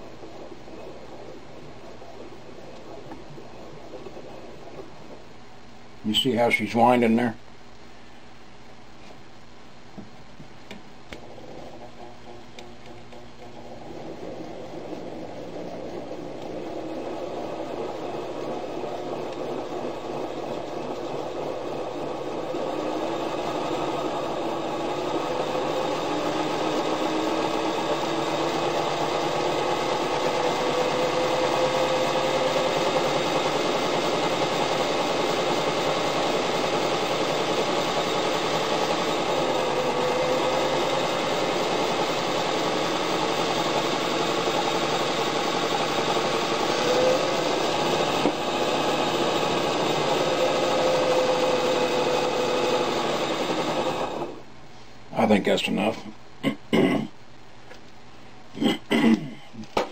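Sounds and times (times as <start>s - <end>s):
sewing machine motor whirring: 11.3s - 54.4s.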